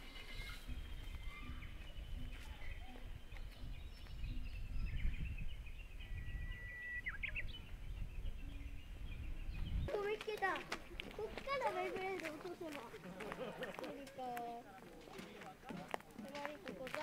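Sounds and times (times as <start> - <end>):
small birds chirping: 0.0 - 12.7
bird whistling and warbling: 6.0 - 7.6.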